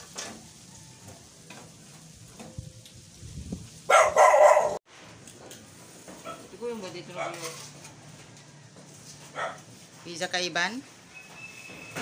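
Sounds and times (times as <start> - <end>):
dog bark: 3.9 - 4.8, 9.3 - 9.7
faint scraping: 7.2 - 10.1.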